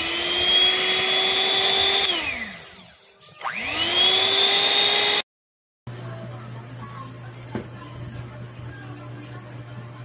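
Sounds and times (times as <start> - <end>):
hand mixer motor whine: 0.0 - 5.2.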